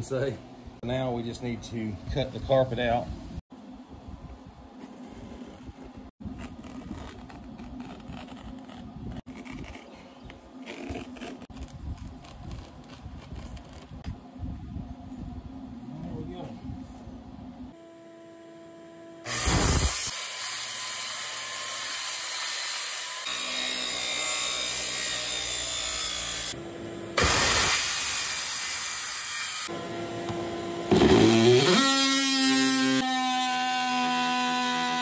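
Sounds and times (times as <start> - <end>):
circular saw cutting: 19.1 - 35.0
oscillating multi-tool buzzing: 19.2 - 26.6, 27.2 - 29.8.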